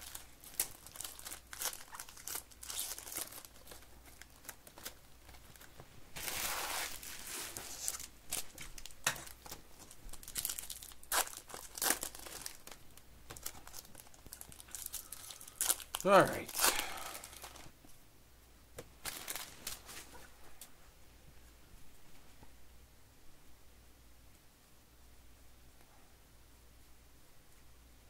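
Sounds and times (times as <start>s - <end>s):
foil wrappers crinkling and tearing: 0.0s - 17.7s, 19.0s - 20.1s.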